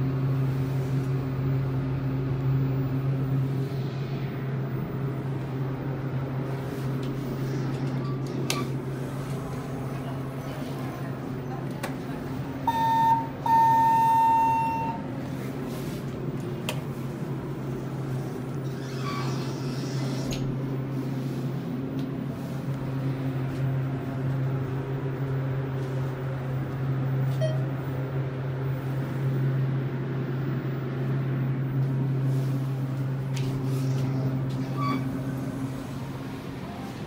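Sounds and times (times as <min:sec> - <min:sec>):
elevator low hum: 0:00.0 - 0:37.0
elevator beep: 0:07.9 - 0:08.8, 0:12.6 - 0:15.1, 0:27.3 - 0:27.7, 0:34.6 - 0:35.3.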